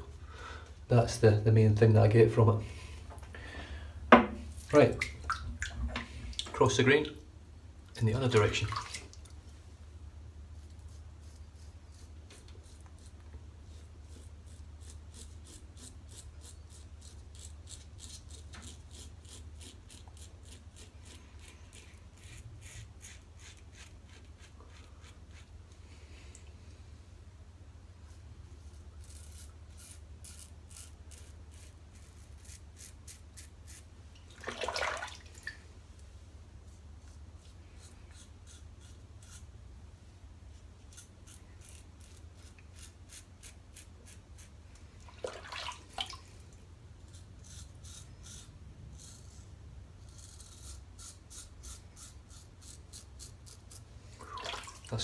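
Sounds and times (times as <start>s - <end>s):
razor scraping stubble: 10.6s - 25.6s, 28.1s - 33.9s, 36.7s - 39.5s, 40.5s - 44.6s, 47.0s - 53.9s.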